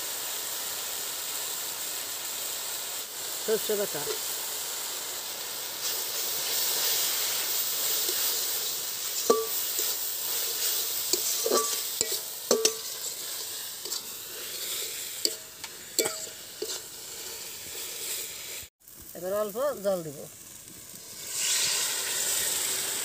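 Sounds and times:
food sizzling in hot oil: 0.0s - 23.0s
metal spatula scraping a wok: 5.8s - 18.7s, 21.1s - 23.0s.

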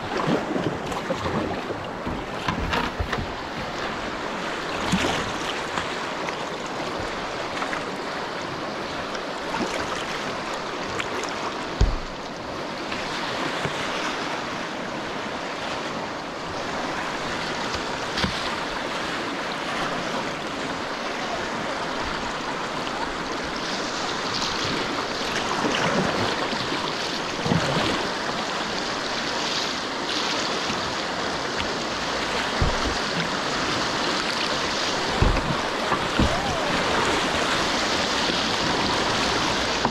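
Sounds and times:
paddle blades splashing: 0.0s - 39.9s
river water rushing and splashing: 0.0s - 39.9s
dull knocks: 11.8s - 12.2s, 32.4s - 33.4s, 34.9s - 36.7s.

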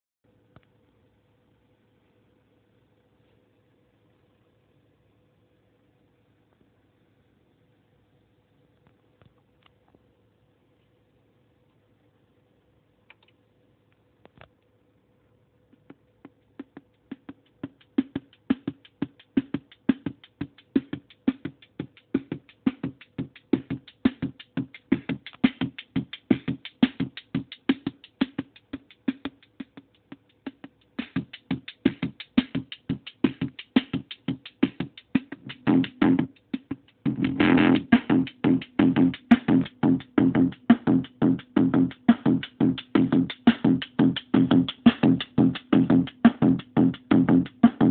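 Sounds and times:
faint steady hum: 0.2s - 47.9s
dense distorted buzz: 15.7s - 47.9s
distorted bass drum sequence: 15.8s - 47.9s.

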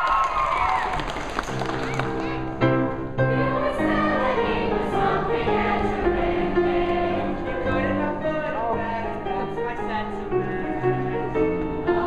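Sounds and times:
children's chorus singing: 3.2s - 8.0s, 11.8s - 12.0s.

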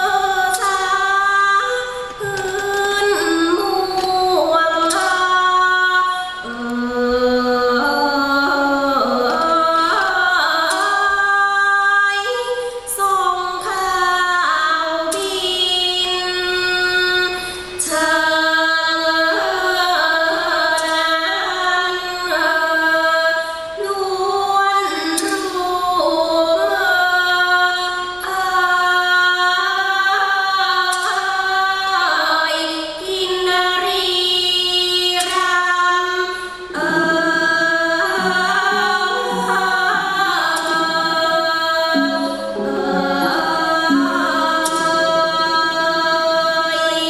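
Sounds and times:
woman singing ornamented notes: 0.0s - 47.0s
instrumental accompaniment: 36.2s - 47.0s.

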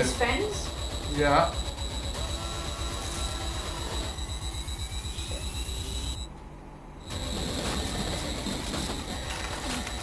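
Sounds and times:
fast low pulse: 0.0s - 6.3s
steady high tone: 0.0s - 6.3s.

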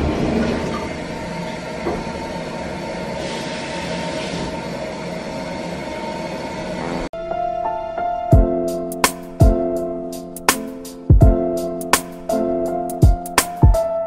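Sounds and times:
toilet cistern refilling: 0.0s - 4.5s
soft music: 7.2s - 14.0s.

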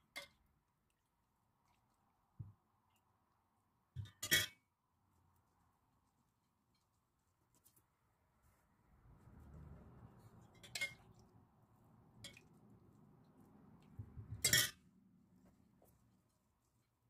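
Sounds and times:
metal spoon clinking on dishes: 10.5s - 11.3s, 14.4s - 14.8s.

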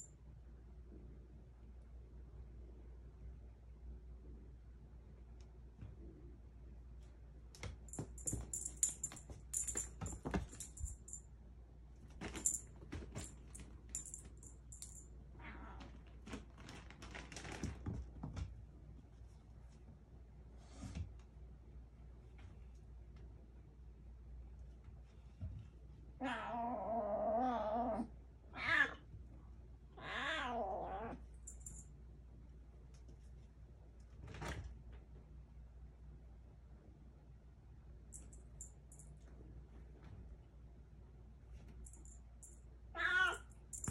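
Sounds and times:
small bell jingling: 7.9s - 11.2s, 12.2s - 15.1s, 31.4s - 31.9s, 43.6s - 43.9s.

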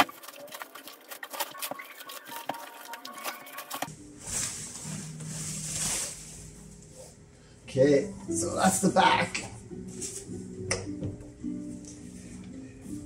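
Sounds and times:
plastic wrapping crinkling: 0.0s - 6.8s
soft rustling: 4.2s - 7.2s.

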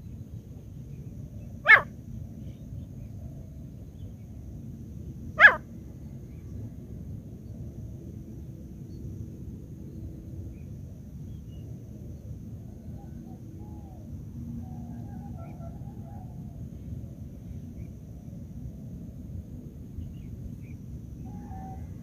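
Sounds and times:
partridge calls: 1.6s - 1.9s, 5.4s - 5.6s.

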